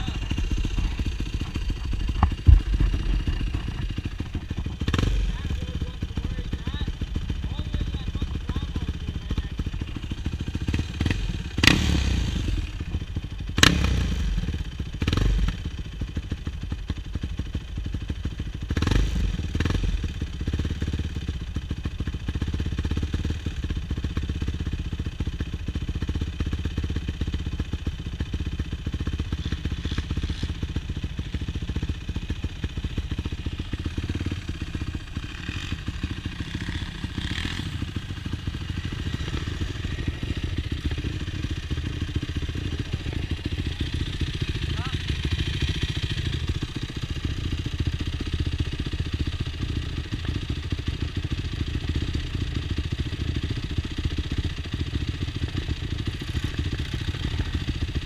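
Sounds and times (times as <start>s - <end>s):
quad engine running: 0.0s - 58.0s
sharp knocks and clatters: 1.3s - 4.8s.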